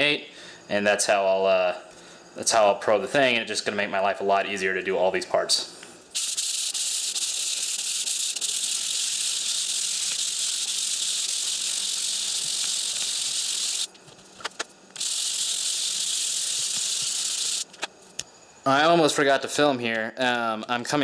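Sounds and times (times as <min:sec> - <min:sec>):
plastic rubbed on sandpaper: 0:06.2 - 0:13.9, 0:15.0 - 0:17.6.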